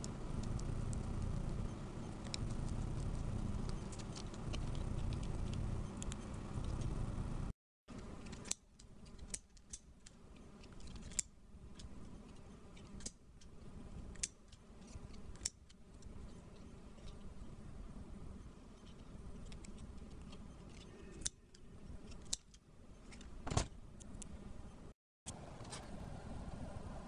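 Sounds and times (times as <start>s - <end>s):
low steady rumble: 0.0s - 7.6s.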